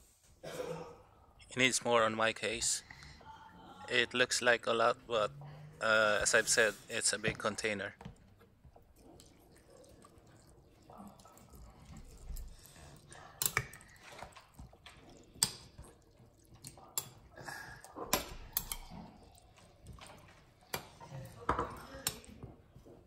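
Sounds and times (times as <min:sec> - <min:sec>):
liquid sloshing and dripping: 0:06.7 - 0:23.0.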